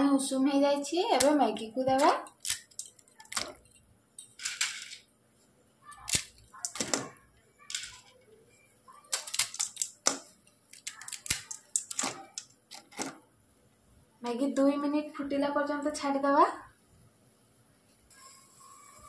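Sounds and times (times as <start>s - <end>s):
dry noodles snapping: 1.1s - 3.6s, 6.0s - 7.0s, 9.1s - 13.1s.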